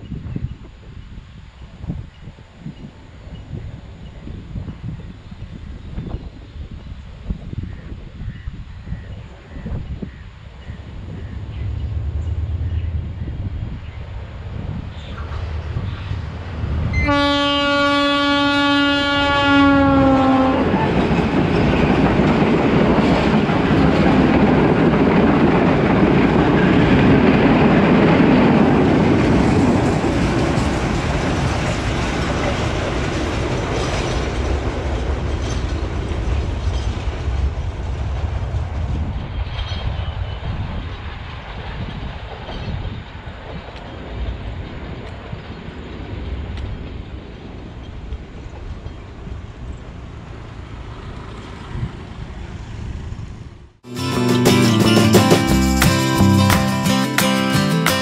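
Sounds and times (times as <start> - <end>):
train rumbling past on rails: 0.0 - 58.0
train horn blast: 16.9 - 21.2.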